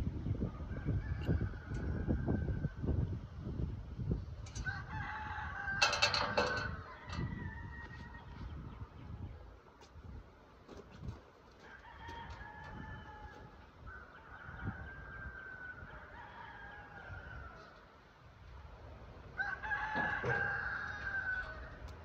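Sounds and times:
rooster crowing: 4.6 - 8.3, 11.6 - 17.8, 19.4 - 21.8.

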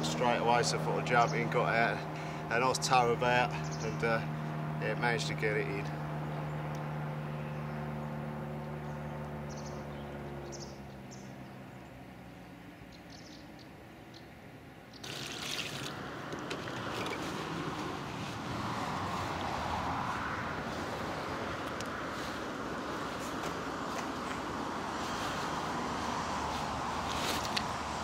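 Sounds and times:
water pouring from bucket: 15.0 - 17.2.

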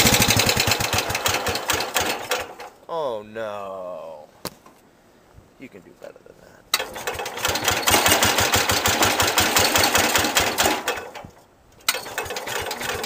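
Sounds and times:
engine cranking over: 0.0 - 2.8, 6.8 - 13.0.

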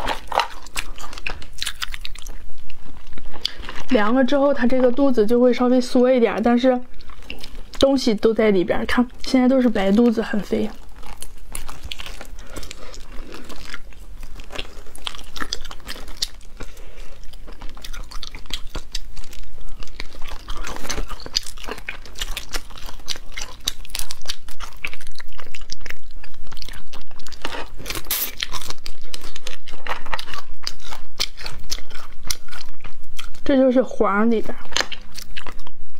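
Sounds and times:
chewing and crunching: 0.0 - 35.9
shells cracking and peeling: 10.0 - 33.5, 34.6 - 35.8.

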